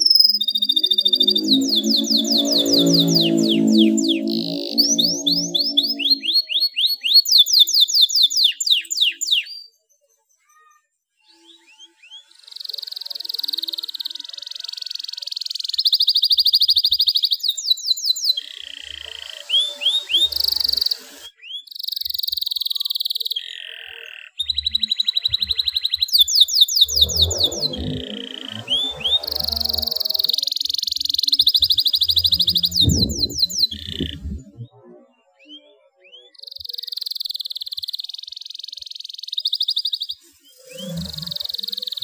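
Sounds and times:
canary singing: 0.0s - 9.5s, 17.8s - 34.8s.

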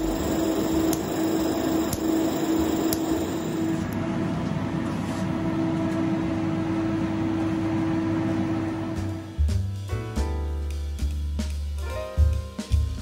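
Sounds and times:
cooling fan whirring hum: 0.0s - 9.4s.

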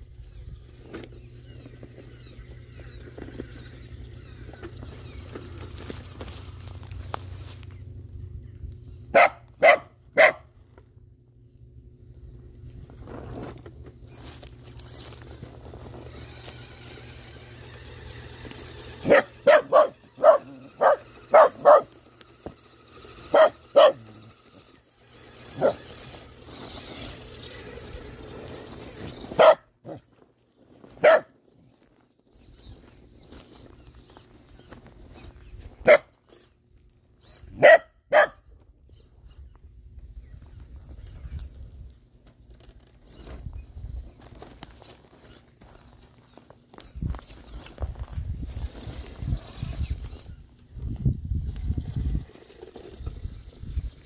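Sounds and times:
dog barking: 9.1s - 10.4s, 19.0s - 21.9s, 23.3s - 24.0s, 29.4s - 30.0s, 31.0s - 31.3s, 35.8s - 36.1s, 37.6s - 38.4s.

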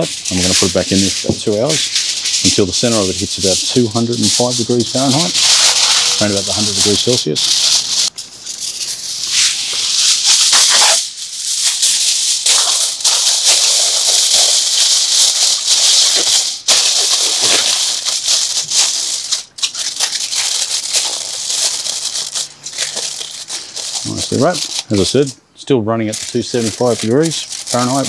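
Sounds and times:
aluminium foil crinkling: 0.0s - 25.4s, 26.0s - 28.0s.

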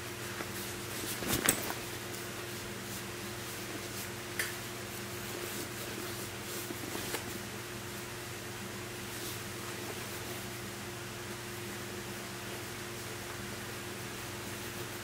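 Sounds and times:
rustling and clicks: 0.3s - 1.9s.

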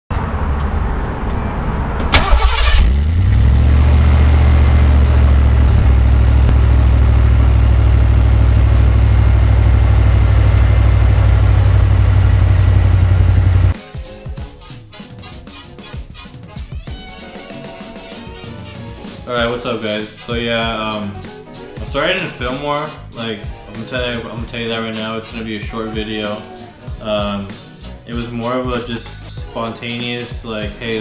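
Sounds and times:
car engine starting: 0.2s - 13.8s
car engine idling: 2.0s - 13.8s.

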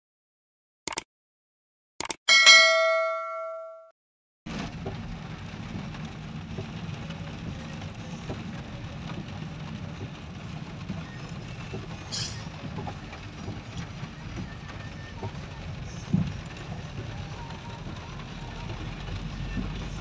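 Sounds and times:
car interior road rumble: 4.5s - 20.0s.

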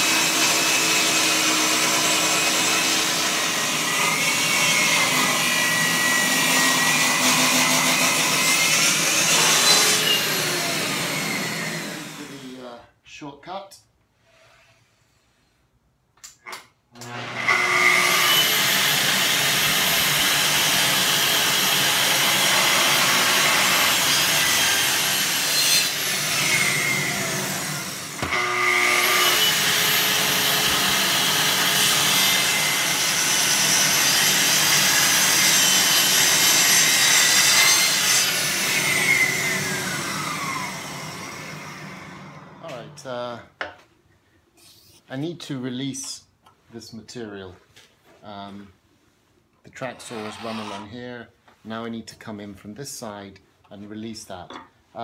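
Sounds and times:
circular saw cutting wood: 0.0s - 12.8s, 17.0s - 43.1s, 49.8s - 51.2s.

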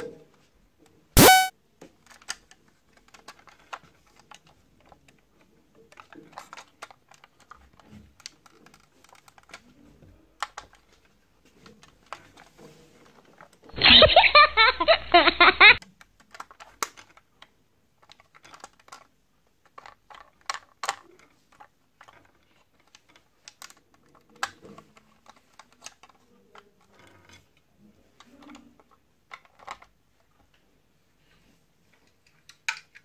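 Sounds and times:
plastic toy clicks and knocks: 15.8s - 27.5s, 28.2s - 29.9s, 32.2s - 33.0s.

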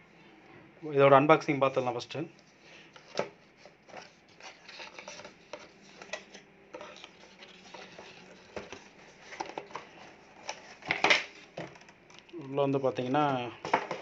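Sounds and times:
cardboard rubbing and scraping: 3.0s - 11.5s.

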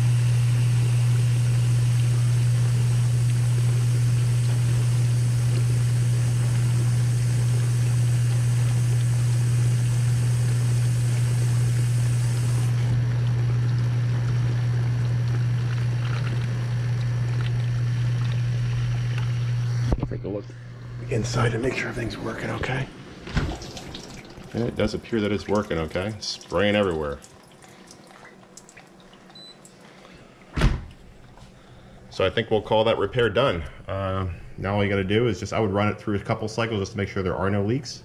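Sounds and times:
dishwasher motor humming: 0.0s - 37.4s
water rushing and spraying: 21.1s - 27.1s.

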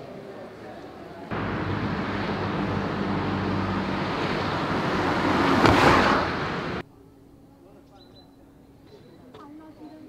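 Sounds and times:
car driving past: 1.3s - 6.8s.

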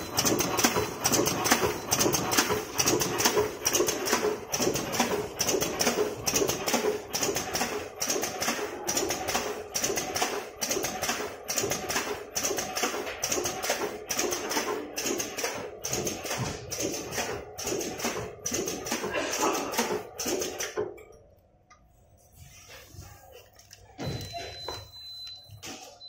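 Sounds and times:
packing machine clattering: 0.0s - 10.2s.

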